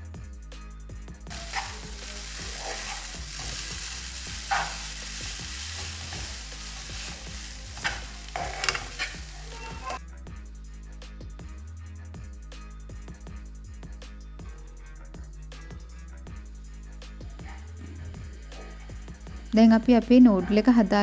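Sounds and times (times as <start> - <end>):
noodles sizzling in a pan: 1.3 - 10.0
utensils scraping and clinking on pan: 1.3 - 10.0.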